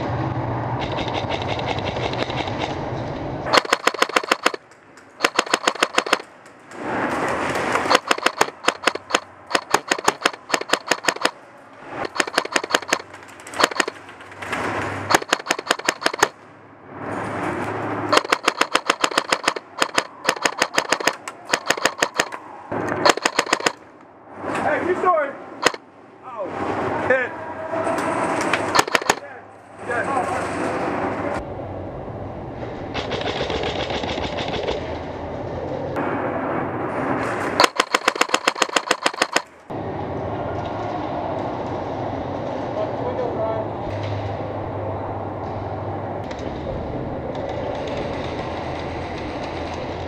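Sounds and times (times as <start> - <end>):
airsoft rifle firing bursts: 3.5 - 4.6, 5.2 - 6.3, 7.9 - 11.4, 12.1 - 14.0, 15.1 - 16.4, 18.1 - 22.4, 23.0 - 23.8, 28.7 - 29.2, 37.6 - 39.5.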